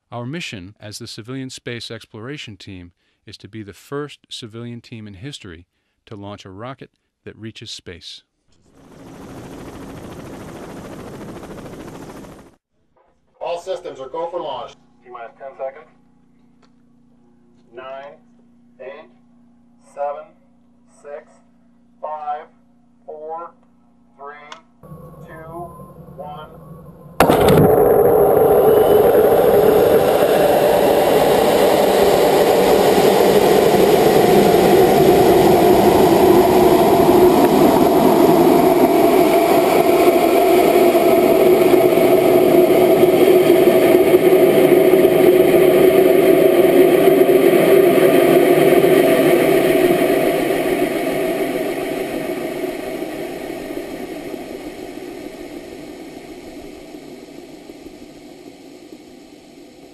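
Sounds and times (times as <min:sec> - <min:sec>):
rocket motor and rushing air: 0:24.8 - 0:59.9.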